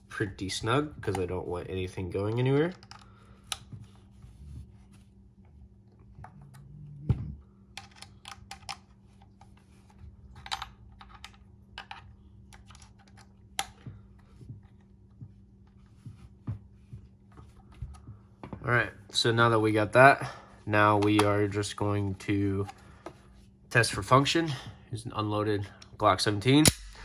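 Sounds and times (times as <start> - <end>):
plastic parts clicking and knocking: 6.2 - 9.5, 10.3 - 14.8.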